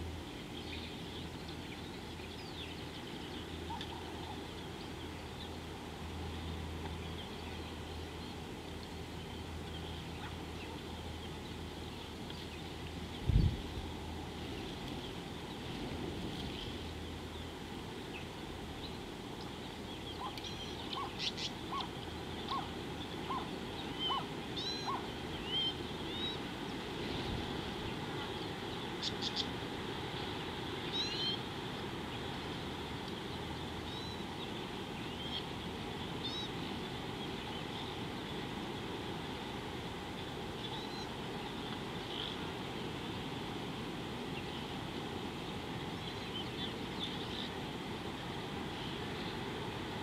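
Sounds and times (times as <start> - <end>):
outdoor background hiss: 0.0 - 50.0
birds calling: 0.3 - 5.7, 16.4 - 38.0.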